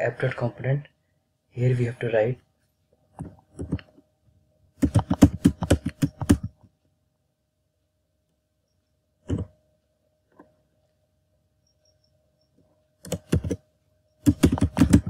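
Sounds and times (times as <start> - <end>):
computer keyboard typing: 4.8 - 6.6, 13.0 - 13.6, 14.2 - 15.0.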